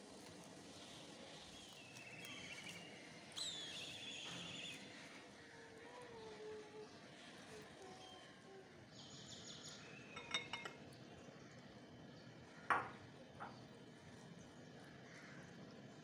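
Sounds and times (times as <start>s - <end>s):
glass bowl set on countertop: 10.1s - 10.8s, 12.7s - 13.5s
light glassy clinks: 10.2s - 10.8s.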